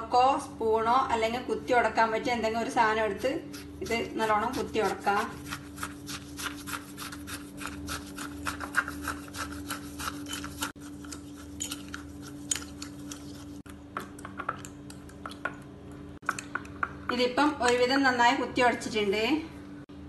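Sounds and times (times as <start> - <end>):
fork crushing fruit in glass: 3.4 - 15.6.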